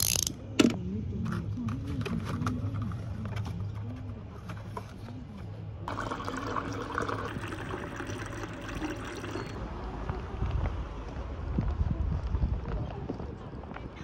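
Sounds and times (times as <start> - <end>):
water pouring into mug: 5.9 - 9.6.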